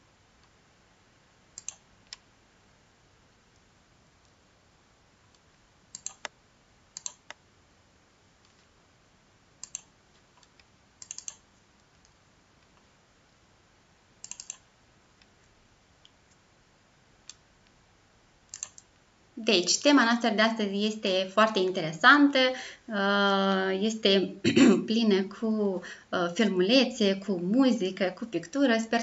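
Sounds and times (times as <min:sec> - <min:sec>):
computer mouse clicks: 0:01.5 - 0:02.2, 0:05.3 - 0:06.4, 0:07.0 - 0:07.4, 0:09.6 - 0:12.9, 0:14.2 - 0:16.4, 0:18.5 - 0:18.9.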